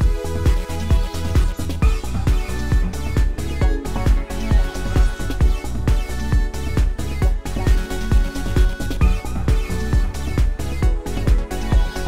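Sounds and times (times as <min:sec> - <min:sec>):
electronic dance music: 0:00.0 - 0:12.0.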